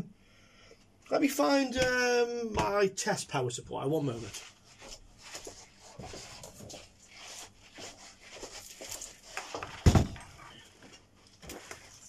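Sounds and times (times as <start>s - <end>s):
rustling and handling noises: 3.9s - 12.0s
loud thump: 9.8s - 10.2s.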